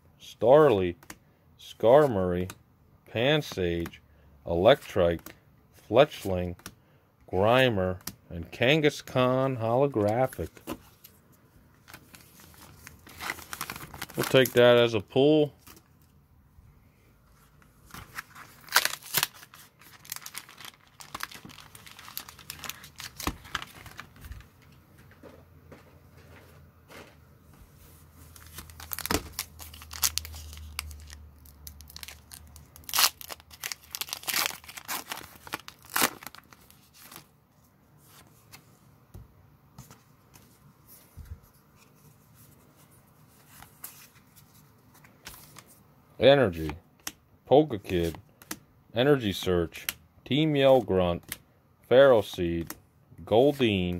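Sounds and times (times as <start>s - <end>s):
foil wrapper crinkling and tearing: 11.9s - 14.8s, 18.2s - 24.5s, 28.3s - 37.3s.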